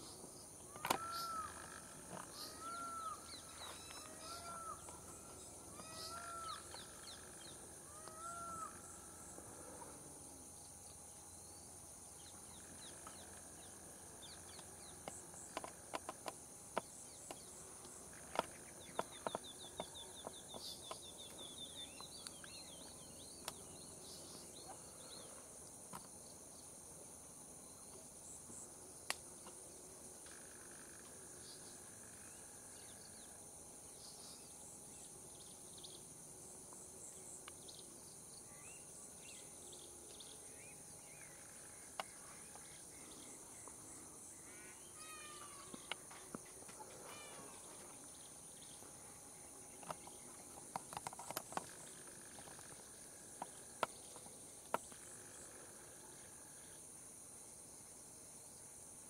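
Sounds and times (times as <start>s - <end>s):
bird calling: 0.7s - 8.9s
high-pitched insect drone: 0.7s - 10.6s, 38.4s - 50.3s.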